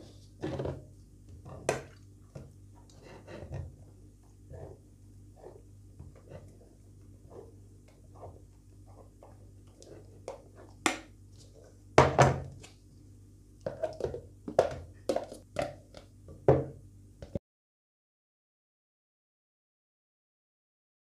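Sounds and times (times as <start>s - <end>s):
spatula stirring cream: 0.0s - 11.9s.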